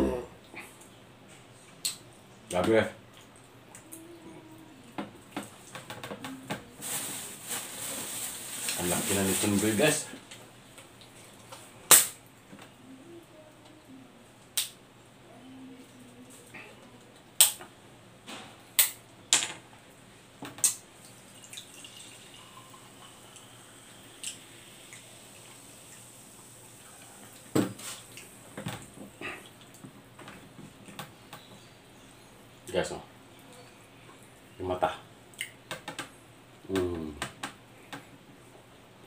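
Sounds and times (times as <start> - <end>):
liquid pouring into glass: 21.2 - 23.2.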